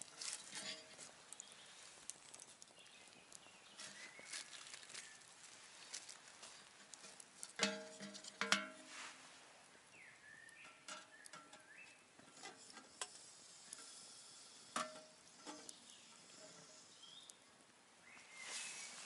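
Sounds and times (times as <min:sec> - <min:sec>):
metal pot clinking on firebox: 0:00.0 - 0:02.9, 0:06.0 - 0:09.0, 0:10.5 - 0:16.8
wood fire crackling: 0:00.0 - 0:17.8.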